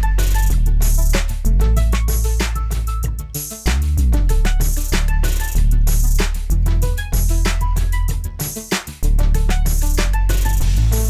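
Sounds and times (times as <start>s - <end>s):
drums: 0.0s - 11.0s
heavy bass line: 0.0s - 11.0s.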